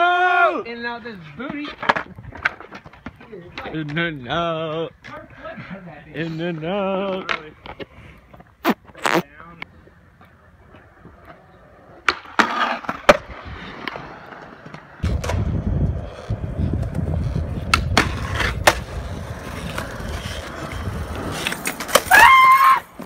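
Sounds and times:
skateboard wheels rolling on concrete: 0:00.0 - 0:23.0
skateboard clacks: 0:12.0 - 0:23.0.

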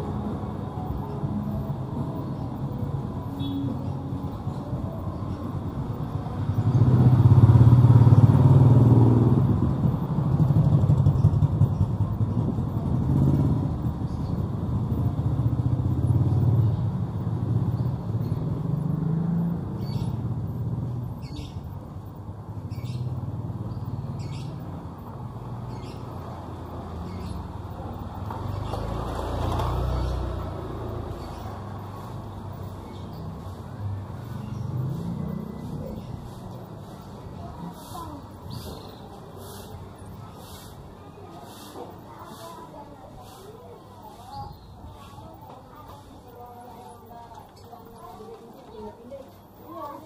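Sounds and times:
motorcycle engines passing: 0:00.0 - 0:50.0.

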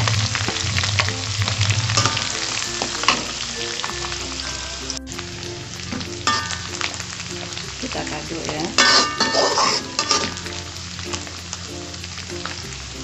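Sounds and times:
fish sizzling in hot oil: 0:00.0 - 0:13.0
metal spoon clinking on pan: 0:06.2 - 0:06.9, 0:08.6 - 0:10.6.

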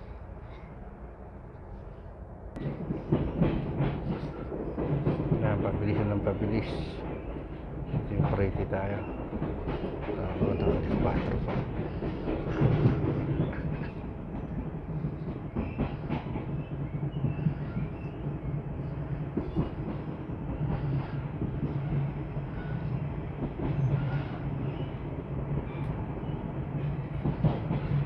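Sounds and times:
train interior low hum: 0:00.0 - 0:28.0
wheels clicking over rails: 0:02.6 - 0:28.0.

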